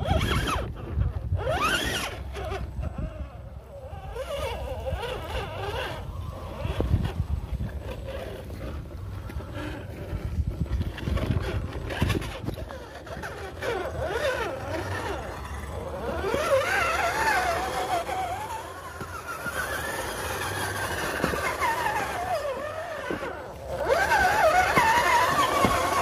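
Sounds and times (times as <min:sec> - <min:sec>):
toy car motor whining: 0:00.0 - 0:26.0.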